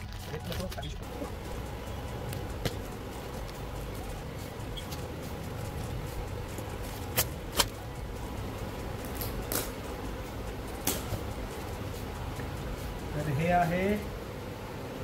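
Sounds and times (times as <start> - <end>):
cardboard and tape crackling: 0.0 - 0.9, 5.8 - 7.8, 9.0 - 9.8
steady low hum: 0.0 - 15.0.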